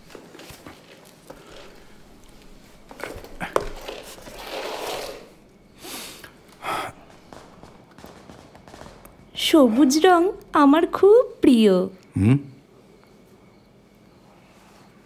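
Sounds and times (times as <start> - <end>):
breathy exhales: 5.8 - 7.2.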